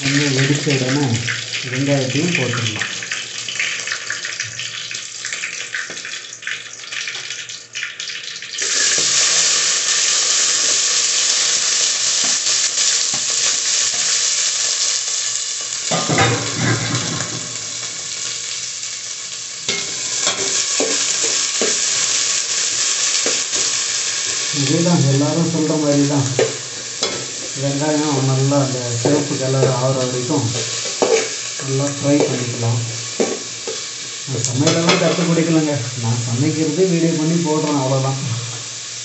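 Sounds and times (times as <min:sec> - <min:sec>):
chillies crackling in hot oil: 0:00.0 - 0:39.0
onions sizzling in oil: 0:00.0 - 0:39.0
metal spoon scraping pot: 0:30.6 - 0:31.4.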